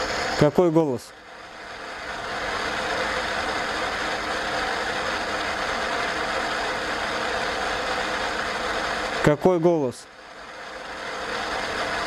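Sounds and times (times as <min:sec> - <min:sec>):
radio static hiss: 0:00.0 - 0:01.2, 0:02.6 - 0:10.0.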